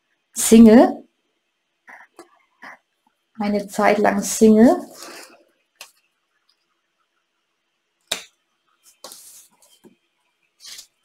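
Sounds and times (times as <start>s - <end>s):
playing cards snapping: 8.1s - 8.3s.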